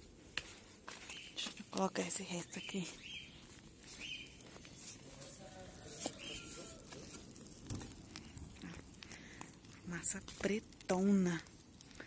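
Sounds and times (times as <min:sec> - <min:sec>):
flip-flop footsteps on dirt: 0:00.0 - 0:08.0.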